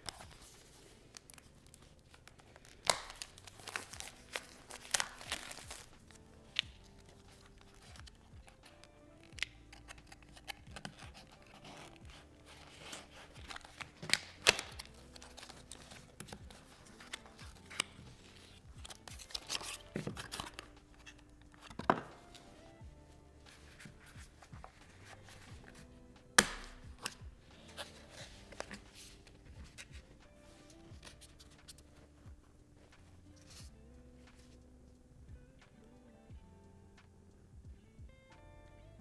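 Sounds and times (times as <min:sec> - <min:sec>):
soft background music: 0:00.0 - 0:39.0
plastic case clicking open: 0:08.5 - 0:11.6, 0:13.4 - 0:18.0, 0:18.8 - 0:22.4, 0:26.4 - 0:27.2
card box sliding open: 0:09.7 - 0:22.6, 0:23.5 - 0:29.9.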